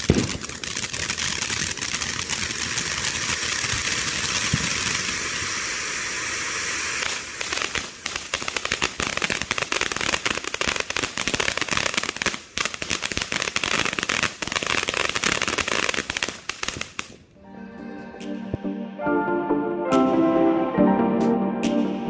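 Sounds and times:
firework fountain spray hiss: 0.0 - 17.3
firework crackling: 0.0 - 17.4
background music: 17.4 - 22.0.

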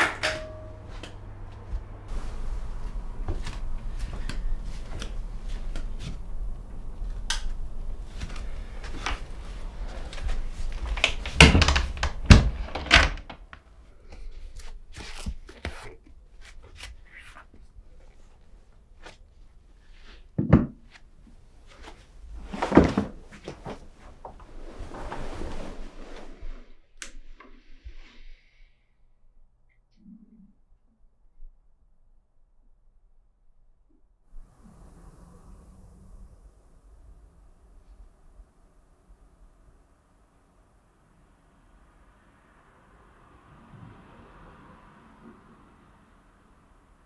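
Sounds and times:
low hum: 0.1 - 13.0.

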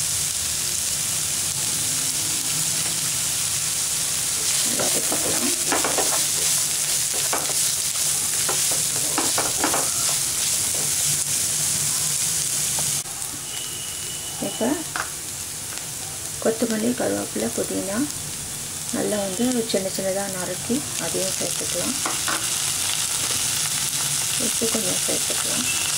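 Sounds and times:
vegetables sizzling in oil: 0.0 - 25.9
wooden spatula scraping pan: 4.5 - 11.0.

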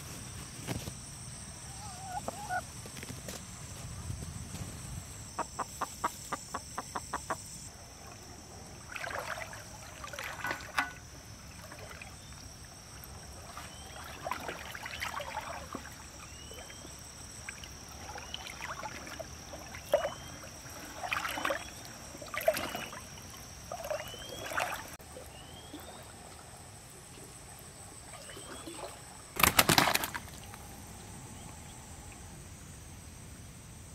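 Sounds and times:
hen clucking: 1.7 - 2.7, 5.4 - 7.6
person wading through water: 7.9 - 26.7.

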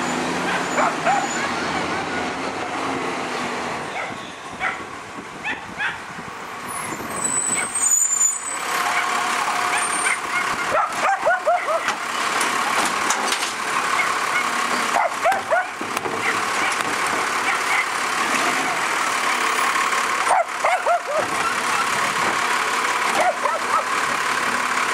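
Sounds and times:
garbage truck running: 0.0 - 5.4, 6.0 - 24.9
dog barking: 0.5 - 1.5, 3.9 - 4.8, 5.4 - 6.0, 8.9 - 9.1, 9.7 - 12.0, 14.0 - 16.8, 17.4 - 17.9, 20.3 - 21.3, 23.2 - 23.9.

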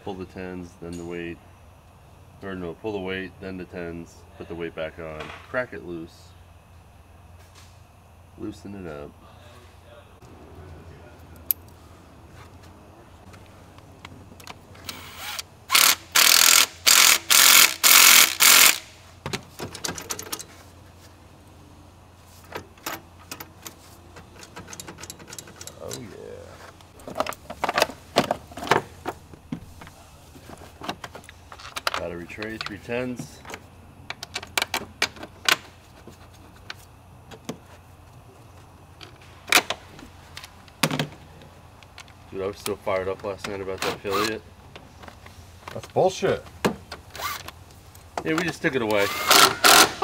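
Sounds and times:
cordless power tool bursts: 14.8 - 19.0, 47.1 - 47.5, 48.9 - 50.0
tools clicking and knocking: 15.8 - 20.5, 22.5 - 26.1.

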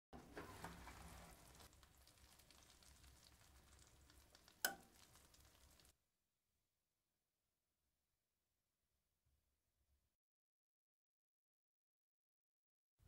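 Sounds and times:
caramel sizzling and crackling: 0.2 - 6.0.

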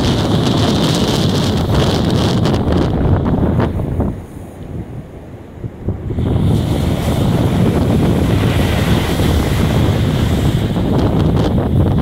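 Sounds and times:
surf washing up beach: 0.0 - 12.0
wind buffeting microphone: 0.0 - 12.0.

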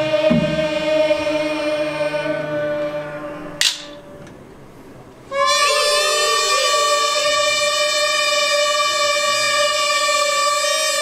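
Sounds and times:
traditional ensemble sustained notes: 0.0 - 11.0
drum stroke: 0.2 - 0.9.

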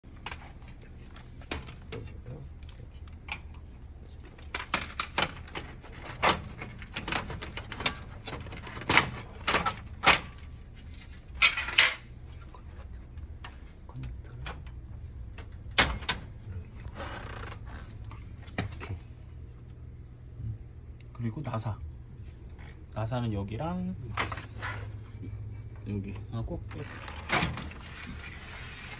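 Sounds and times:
steady low hum: 0.0 - 28.9
copier parts clicking and scraping: 4.2 - 12.1, 24.1 - 25.0, 26.2 - 28.9.

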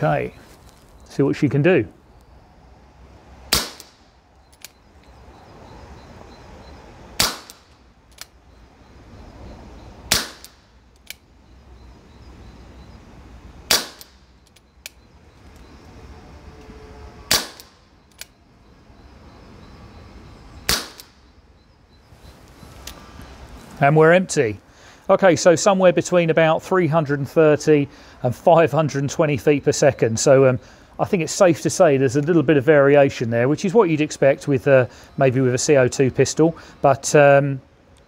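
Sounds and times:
air pistol shots: 3.5 - 4.1, 7.2 - 7.7, 10.1 - 10.7, 13.7 - 14.2, 17.3 - 17.8, 20.6 - 21.2.

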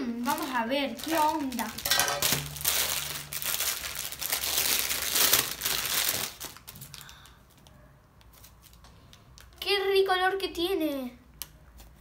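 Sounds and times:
plastic packaging crinkling: 0.0 - 7.6.

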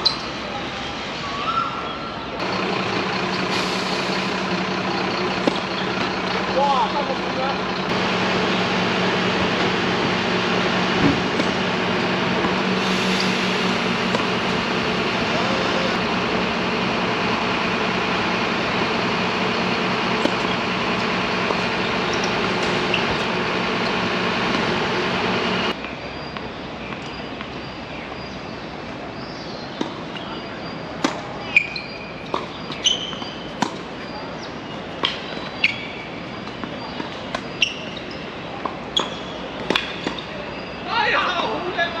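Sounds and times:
loud steady humming noise: 2.4 - 25.8
tennis ball strikes and bounces: 5.4 - 5.9, 11.0 - 12.6, 13.9 - 15.2, 19.6 - 25.2, 32.2 - 34.0, 34.9 - 35.7, 38.6 - 40.3
short squeaks: 31.5 - 33.6, 35.0 - 36.1, 37.0 - 38.3, 38.9 - 40.8.

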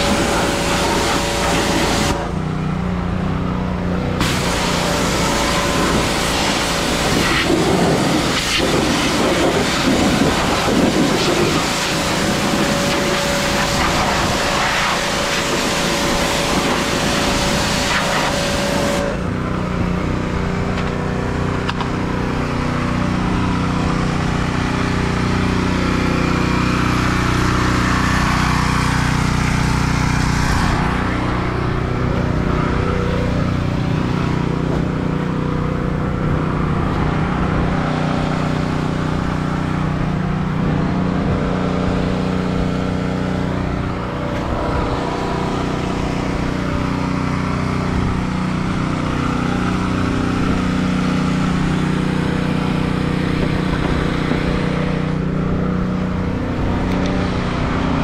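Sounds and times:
high-pressure water spray hiss: 0.0 - 2.2, 4.2 - 19.1
small gas engine running: 0.0 - 58.0.

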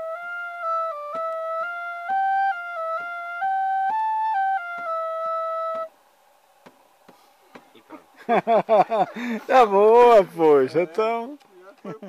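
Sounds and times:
tin whistle melody: 0.0 - 5.9.

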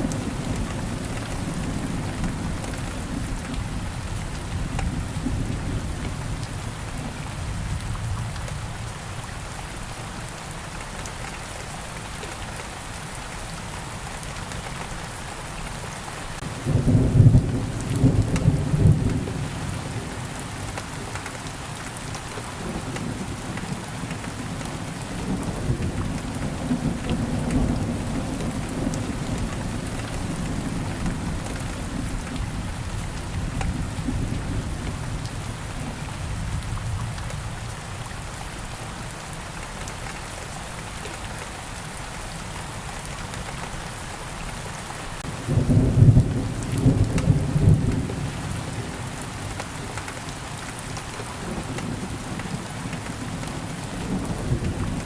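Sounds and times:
steady rain falling: 0.0 - 55.0
low roll of thunder: 45.4 - 48.9.

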